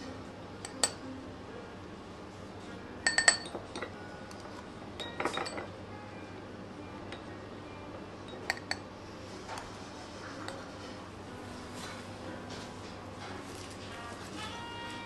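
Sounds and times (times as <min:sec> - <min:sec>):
spoon clinking on glass bowl: 0:03.1 - 0:03.6.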